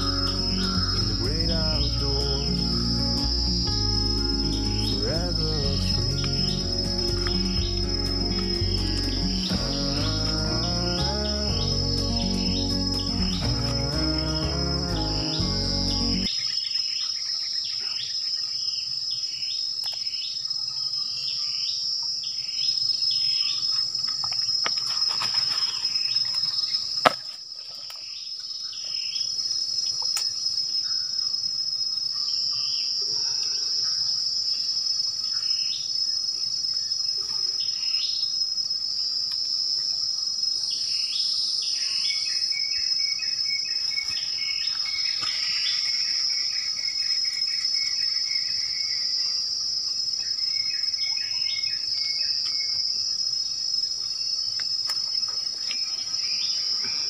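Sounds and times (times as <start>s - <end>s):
shrill insect drone: 0.0s - 16.3s.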